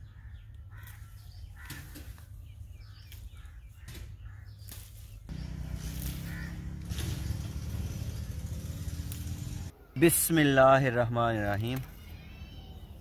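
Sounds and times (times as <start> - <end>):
birds calling: 0.0 - 13.0
low engine-like rumble: 5.3 - 9.7.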